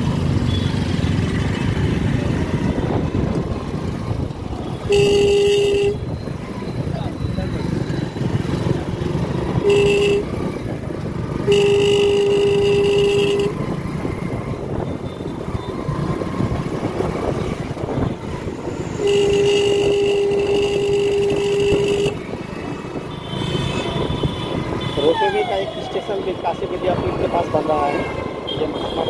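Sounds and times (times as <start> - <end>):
street traffic: 0.0 - 29.0
vehicle horn blasts: 4.8 - 6.1, 9.6 - 10.4, 11.4 - 13.6, 19.0 - 22.2.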